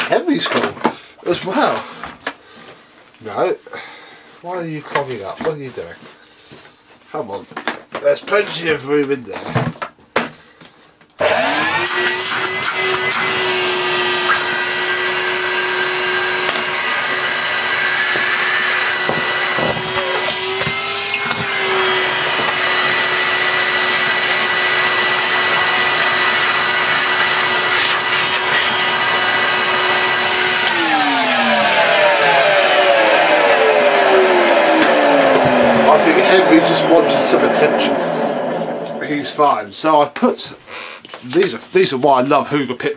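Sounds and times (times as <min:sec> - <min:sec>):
vacuum cleaner motor whine: 0:11.2 - 0:39.6.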